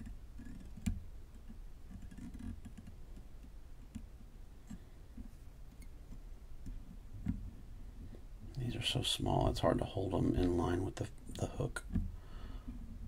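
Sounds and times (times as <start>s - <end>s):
fly tying handling sounds: 0.0s - 7.5s.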